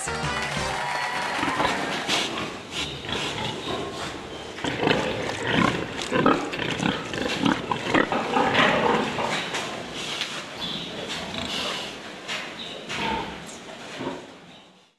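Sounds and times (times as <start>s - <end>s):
pigs calling: 1.0s - 12.1s.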